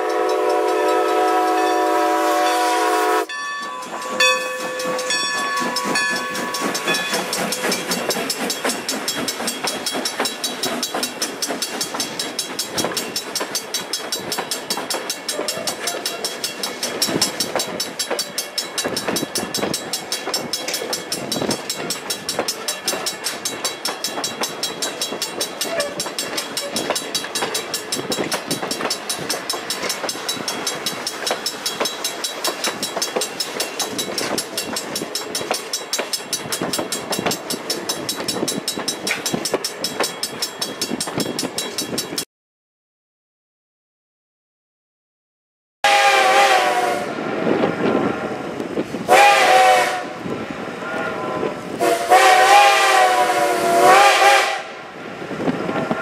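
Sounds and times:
steam whistle chord: 0:00.0 - 0:07.0, 0:45.9 - 0:47.2, 0:49.1 - 0:50.2, 0:50.8 - 0:54.8
train wheels clicking over rail joints: 0:03.3 - 0:42.2.

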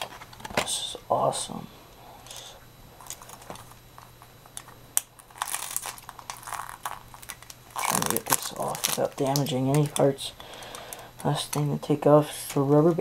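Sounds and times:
faint steady hum: 0:00.0 - 0:13.0
packaging crinkling and rustling: 0:03.0 - 0:13.0.

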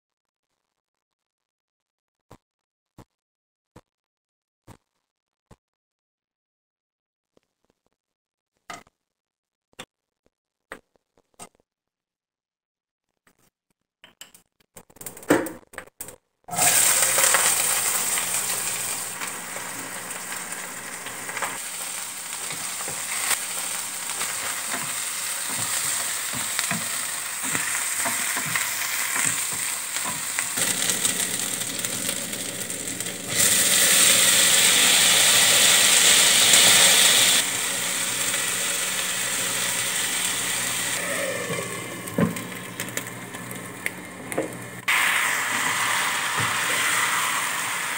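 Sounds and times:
onions sizzling in hot oil: 0:16.5 - 0:47.9
spatula scraping a pan: 0:21.3 - 0:31.1.

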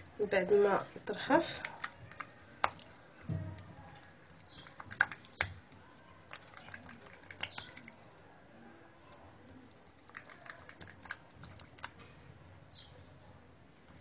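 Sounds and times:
hands slapping dough on countertop: 0:01.5 - 0:08.0.

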